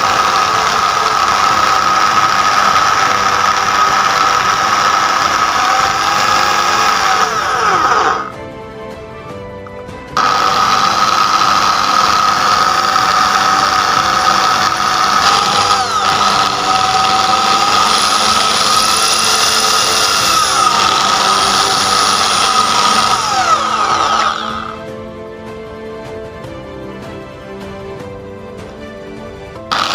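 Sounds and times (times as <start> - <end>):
power drill boring into metal: 0.0 - 8.4, 10.2 - 24.9, 29.6 - 29.9.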